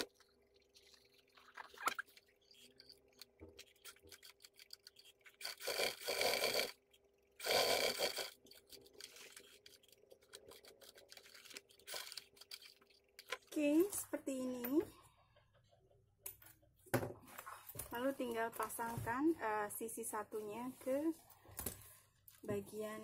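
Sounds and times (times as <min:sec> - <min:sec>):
sewing machine stitching leather: 0:05.4 - 0:06.8, 0:07.4 - 0:09.2.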